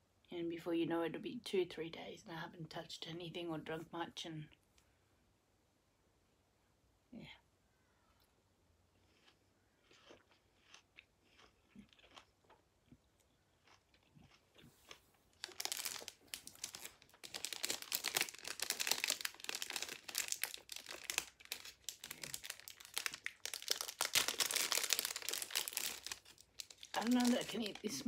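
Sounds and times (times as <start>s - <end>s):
chewing and mouth clicks: 9.0s - 15.6s
plastic packet crinkling: 15.4s - 28.0s.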